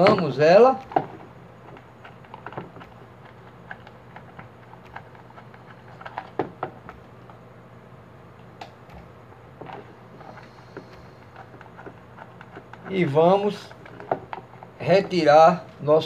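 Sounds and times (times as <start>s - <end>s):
faint low hum: 0.0s - 16.0s.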